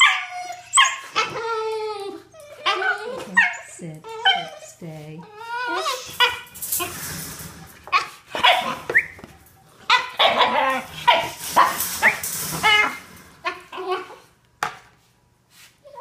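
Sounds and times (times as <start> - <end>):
dogs making high-pitched calls: 0.0 - 6.8.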